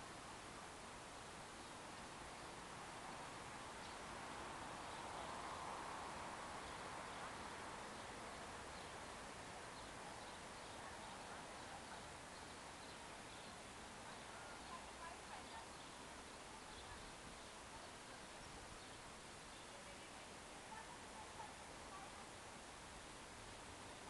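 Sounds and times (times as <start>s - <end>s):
steady background hiss: 0.0s - 24.0s
faint bird chirps: 6.6s - 22.4s.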